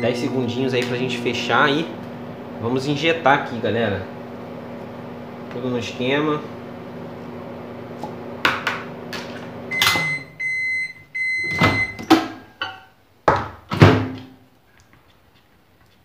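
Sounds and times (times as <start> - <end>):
microwave beeps: 0.0 - 1.5, 9.6 - 12.1
microwave oven humming: 0.0 - 12.1.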